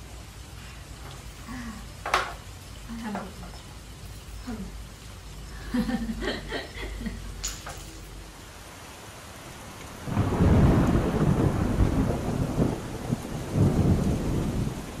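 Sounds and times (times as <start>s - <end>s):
heavy rain falling: 0.0s - 15.0s
thunder rumbling: 10.0s - 15.0s.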